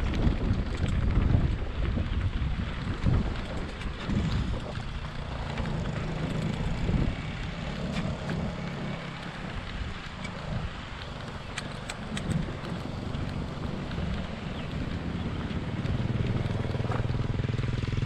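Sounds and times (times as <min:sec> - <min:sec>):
tyres rumbling on pavement: 0:00.0 - 0:18.0
wind buffeting microphone: 0:00.0 - 0:18.0.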